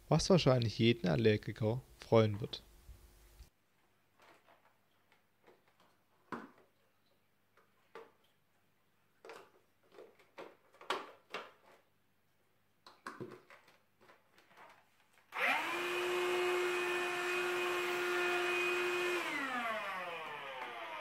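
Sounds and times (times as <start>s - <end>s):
hand vacuum whining: 15.3s - 21.0s.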